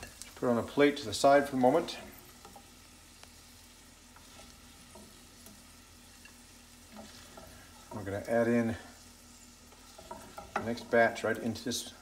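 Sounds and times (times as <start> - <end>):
chicken sizzling in a skillet: 0.0 - 12.0
spatula tapping and scraping: 2.0 - 2.8, 4.0 - 8.2, 9.6 - 11.3.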